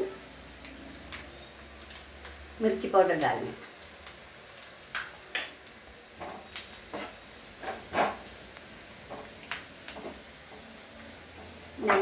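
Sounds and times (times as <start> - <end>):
wooden spatula scraping frying pan: 6.2 - 8.3, 9.0 - 10.7.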